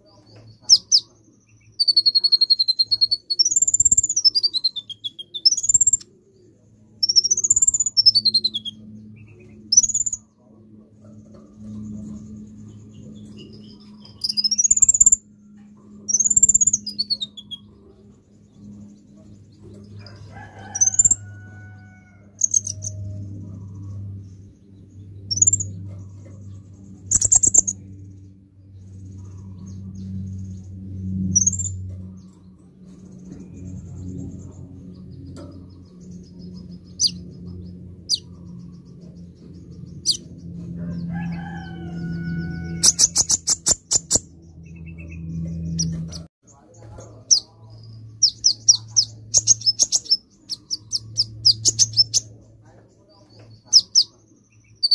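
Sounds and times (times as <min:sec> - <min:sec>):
bird chirping: 0:00.0 - 0:10.5, 0:11.3 - 0:54.9
steady low hum: 0:00.0 - 0:54.9
low drawn-out bird call: 0:33.0 - 0:44.1.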